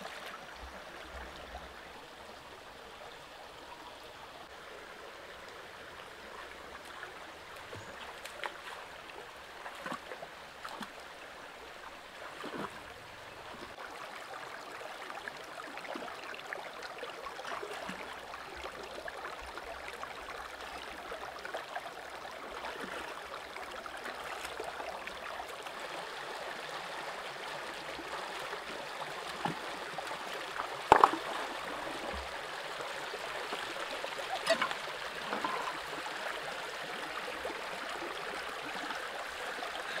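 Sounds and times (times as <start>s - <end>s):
stream running over rocks: 0.0s - 40.0s
small splashes in water: 12.2s - 12.8s
stones clicking: 30.9s - 31.2s.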